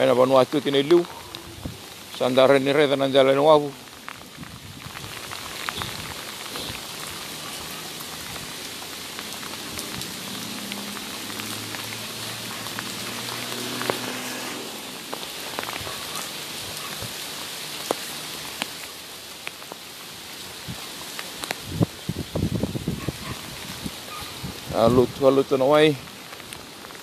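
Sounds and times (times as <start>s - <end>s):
heavy rain hissing: 0.0s - 27.0s
sharp ticks of raindrops: 0.0s - 27.0s.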